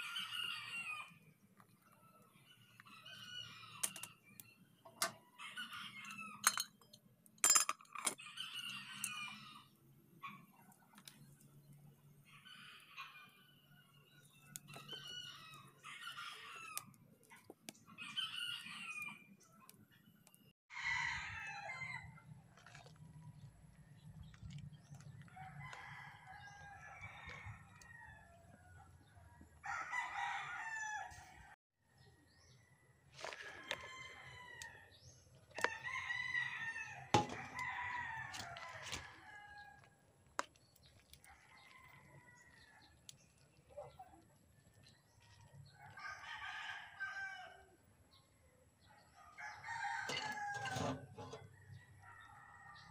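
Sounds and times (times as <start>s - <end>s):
rooster crowing: 29.6s - 31.5s, 45.8s - 47.7s, 49.2s - 50.8s.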